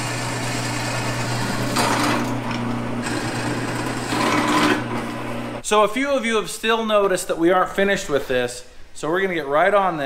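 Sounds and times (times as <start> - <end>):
drill bit cutting metal: 0.0 - 5.1
drill press motor humming: 0.0 - 5.6.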